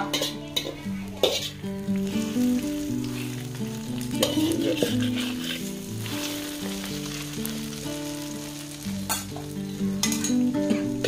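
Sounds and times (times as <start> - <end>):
metal spatula scraping a pan: 0.0 - 7.4
batter sizzling in a pan: 0.0 - 11.0.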